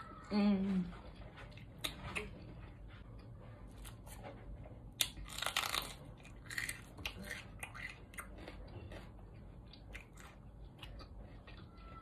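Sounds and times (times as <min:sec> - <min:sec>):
wet chewing: 0:04.9 - 0:12.0
crisp crunches of pepper: 0:05.0 - 0:08.0.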